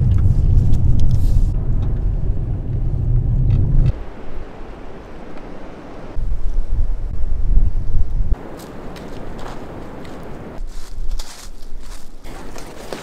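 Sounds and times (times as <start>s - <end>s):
car tyres rumbling on dirt road: 0.0s - 4.2s.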